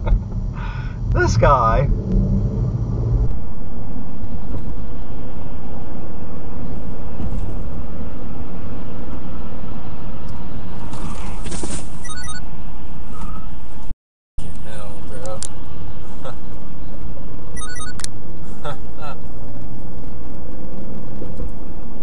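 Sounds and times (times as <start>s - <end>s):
car road and wind noise: 0.0s - 22.0s.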